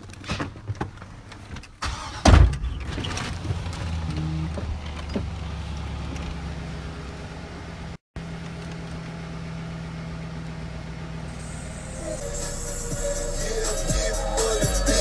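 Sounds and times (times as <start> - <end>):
truck engine idling: 4.0 - 15.0.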